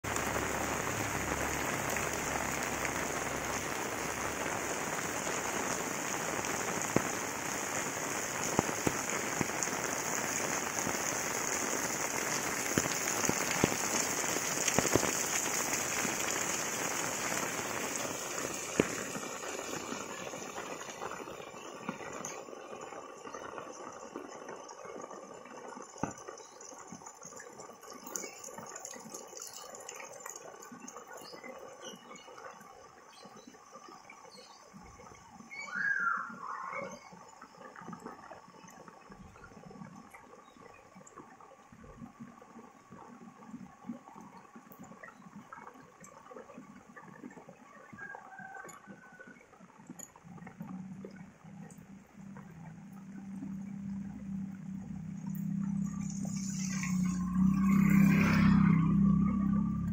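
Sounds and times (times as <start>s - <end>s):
steady rain falling: 0.0s - 59.9s.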